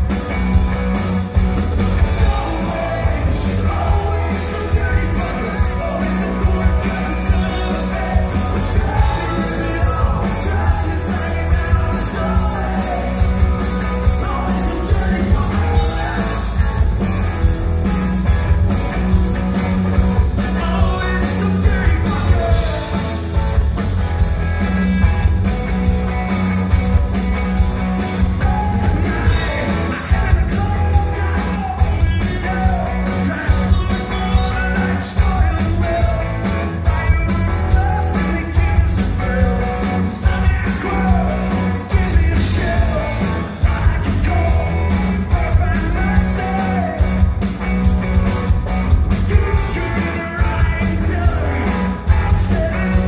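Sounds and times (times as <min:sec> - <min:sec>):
electric guitars: 0:00.0 - 0:53.0
steady drumbeat: 0:00.0 - 0:53.0
man singing: 0:01.8 - 0:17.0, 0:20.0 - 0:23.3, 0:28.1 - 0:47.3, 0:48.8 - 0:53.0.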